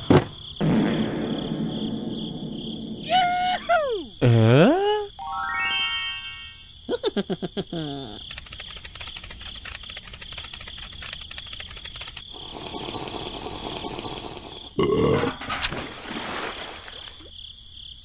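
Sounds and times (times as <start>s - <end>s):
fast clicking rattle: 8.2s - 14.4s
hiss: 12.2s - 14.8s.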